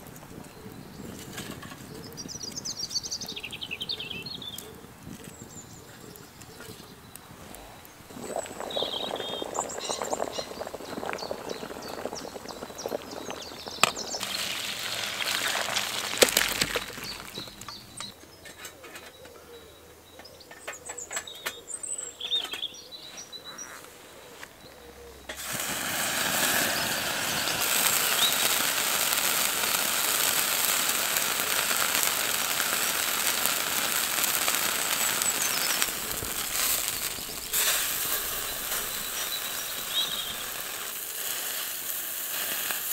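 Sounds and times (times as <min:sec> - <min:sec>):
wood fire crackling: 0:00.0 - 0:18.2, 0:25.3 - 0:42.9
birds chirping: 0:00.0 - 0:25.4, 0:26.4 - 0:41.9
meat sizzling on grill plate: 0:13.4 - 0:17.6, 0:25.4 - 0:42.9.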